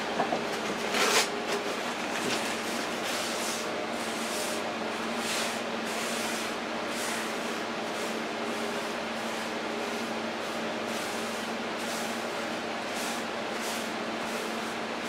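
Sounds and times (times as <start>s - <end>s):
steady low hum: 0.0s - 15.0s
hand wiping countertop: 5.2s - 14.8s.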